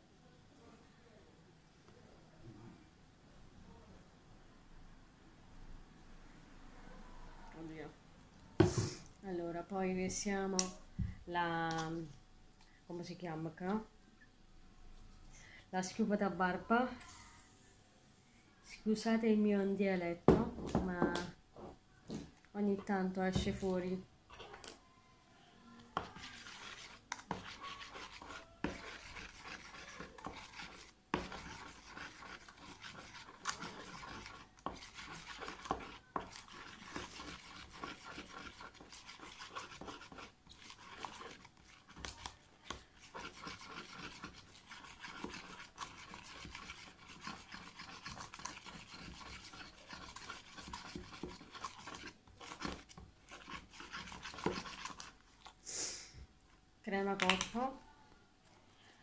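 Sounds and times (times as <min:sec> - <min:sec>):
spoon scraping in plastic tub: 0:22.1 - 0:24.8, 0:26.0 - 0:55.5.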